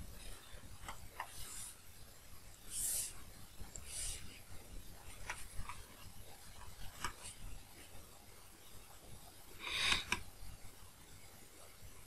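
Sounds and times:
sharp breath through nose: 9.6s - 10.2s.

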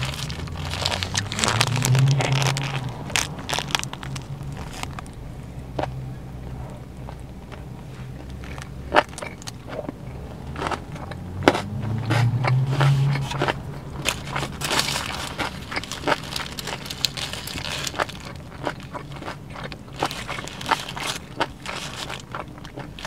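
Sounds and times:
foil wrapper rustling: 0.0s - 5.1s, 14.0s - 19.2s, 19.9s - 23.0s
chewing and crunching: 0.0s - 23.0s.

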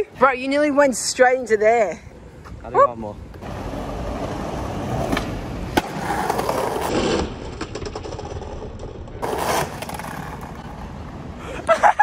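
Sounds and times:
skateboard wheels rolling on paving: 3.3s - 11.5s
rolling and scraping rush: 3.3s - 11.6s.

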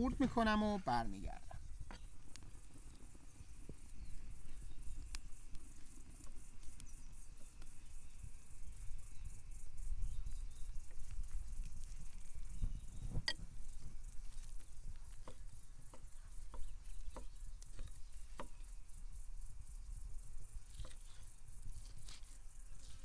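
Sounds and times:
knife tapping on wooden board: 15.2s - 18.6s.

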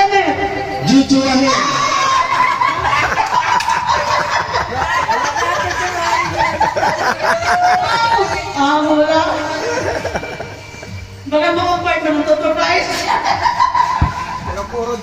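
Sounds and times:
overlapping chatter: 0.0s - 15.0s
people laughing: 1.5s - 11.2s, 12.8s - 14.7s.

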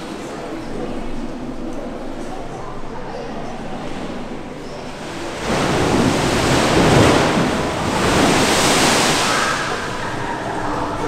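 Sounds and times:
wave rushing down a flume: 3.6s - 11.0s.

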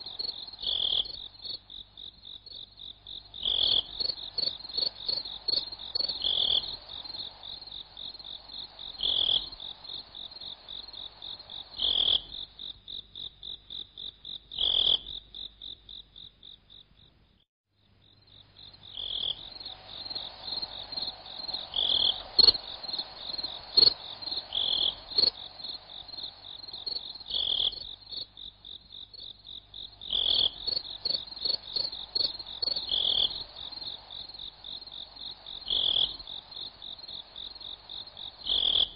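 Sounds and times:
crickets chirping: 0.0s - 38.9s.

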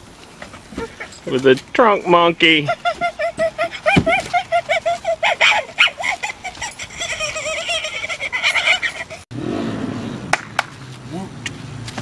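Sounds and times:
monkey-like screeching hoots: 3.0s - 9.2s.

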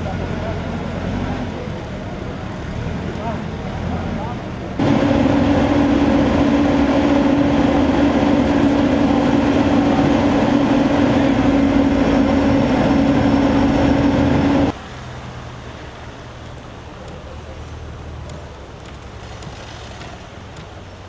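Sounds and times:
machine noise with low hum: 4.7s - 14.8s.

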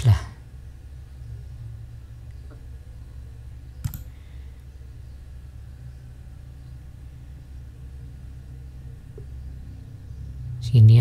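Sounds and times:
steady low hum: 0.0s - 11.0s
computer mouse click: 3.8s - 4.1s.

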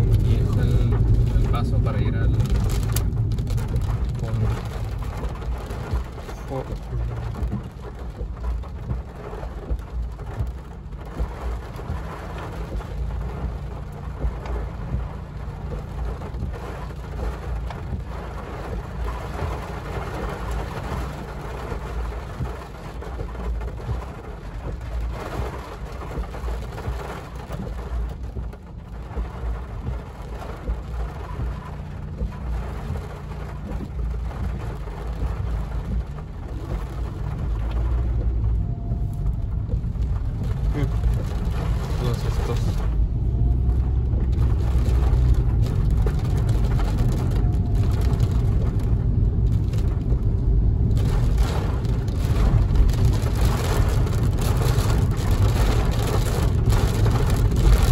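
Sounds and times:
rain on car roof: 0.0s - 57.9s
steady low rumble: 0.0s - 57.9s.

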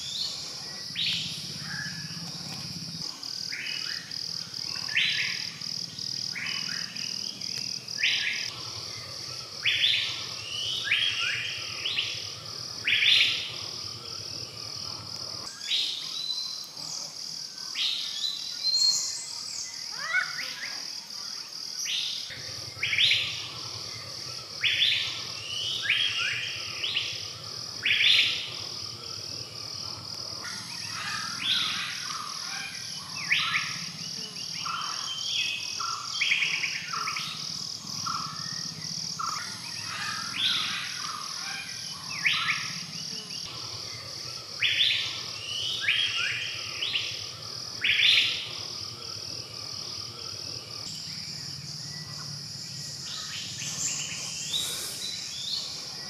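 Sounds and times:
high insect trill: 0.0s - 56.0s
birds calling: 22.0s - 48.7s, 50.8s - 56.0s.

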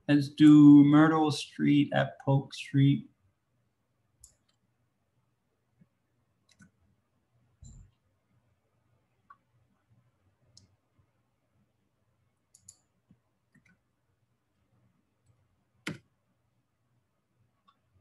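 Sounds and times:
keyboard keys clicking: 6.5s - 6.7s.

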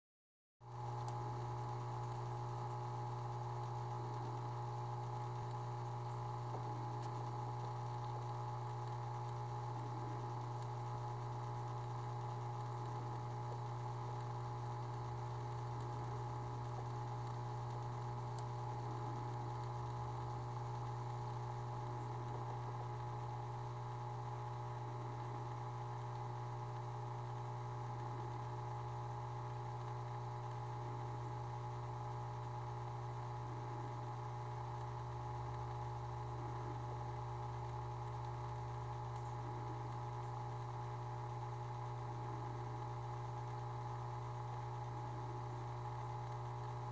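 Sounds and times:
aquarium equipment humming: 0.6s - 46.9s
faint click: 1.0s - 1.2s, 16.6s - 21.0s, 37.7s - 41.5s.

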